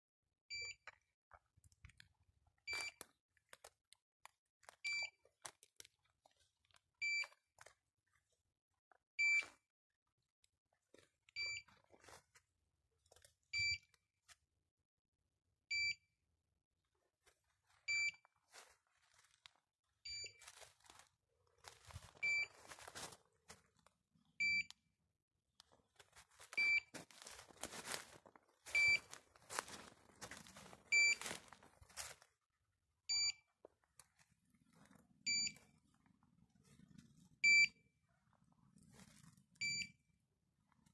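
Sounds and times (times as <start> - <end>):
footsteps through grass and brush: 18.4 - 19.6, 20.4 - 23.7, 26.0 - 32.3
short high beeps: 28.7 - 29.1.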